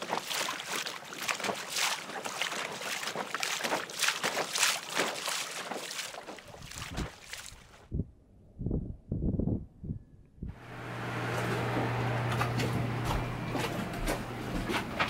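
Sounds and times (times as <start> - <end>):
water splashing against dinghy hull: 0.0 - 7.8.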